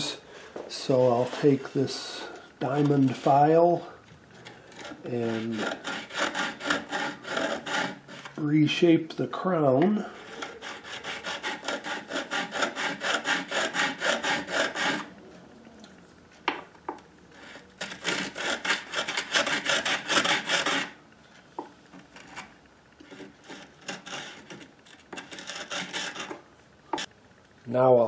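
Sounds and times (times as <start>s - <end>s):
file rasping on metal fret: 4.4s - 8.4s, 9.9s - 15.1s, 17.4s - 21.0s, 22.2s - 27.1s.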